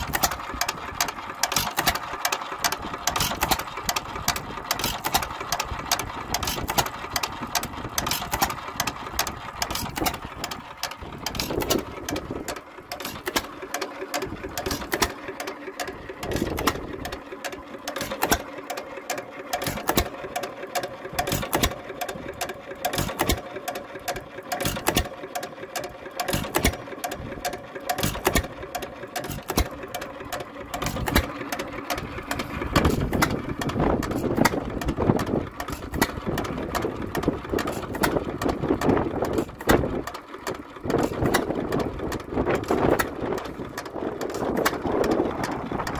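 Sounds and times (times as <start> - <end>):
low engine thuds: 0.0 - 23.5, 25.8 - 45.9
engine valve gear clattering: 0.0 - 45.9.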